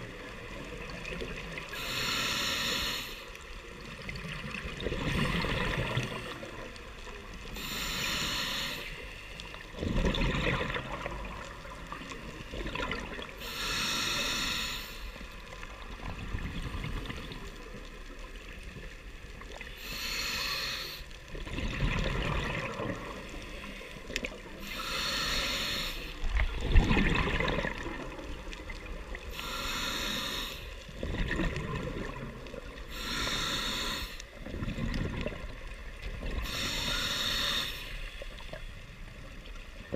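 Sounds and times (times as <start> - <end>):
regulator hissing inhalation: 1.7 - 3.3, 7.5 - 9.2, 13.4 - 15.2, 19.8 - 21.1, 24.6 - 26.3, 29.3 - 30.9, 32.9 - 34.3, 36.4 - 38.2
exhaled bubbles rumbling: 3.8 - 6.8, 9.7 - 13.4, 15.8 - 18.0, 21.3 - 24.6, 26.2 - 29.4, 30.9 - 32.9, 34.4 - 36.5.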